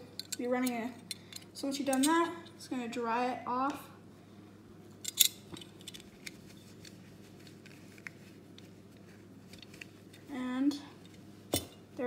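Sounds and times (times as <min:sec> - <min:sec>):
faint handling noise: 0:05.0 - 0:10.4.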